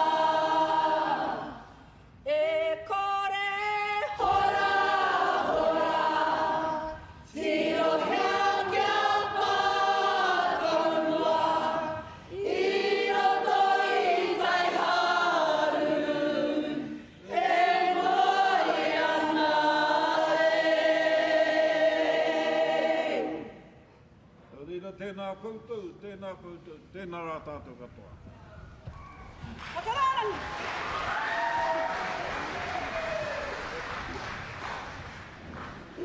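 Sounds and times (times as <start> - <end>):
choir singing: 0.0 - 23.8.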